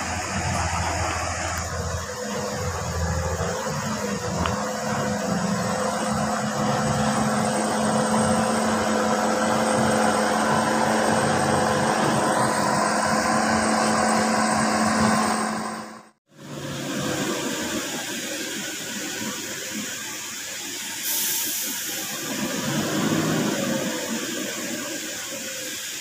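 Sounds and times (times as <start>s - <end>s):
diesel truck engine under load: 0.0s - 26.0s.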